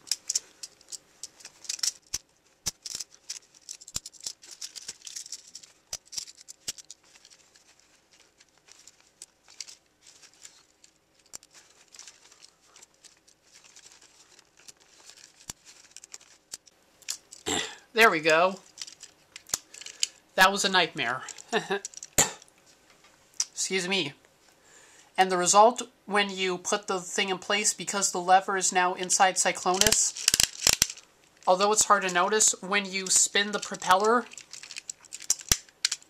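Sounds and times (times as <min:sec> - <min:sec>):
plastic toy parts clicking: 0:00.0 - 0:17.5, 0:18.6 - 0:20.2, 0:21.3 - 0:22.2, 0:29.7 - 0:31.0, 0:33.0 - 0:36.0.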